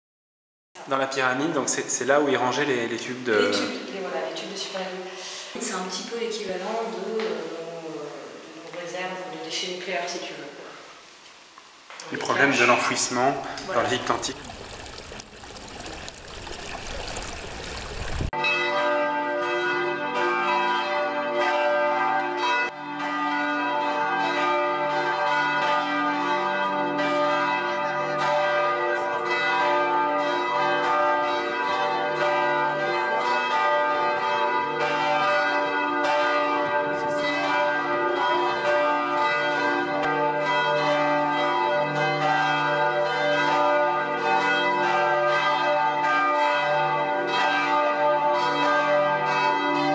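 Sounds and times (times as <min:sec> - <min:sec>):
church bells pealing: 0:12.2 - 0:17.4, 0:18.3 - 0:49.9.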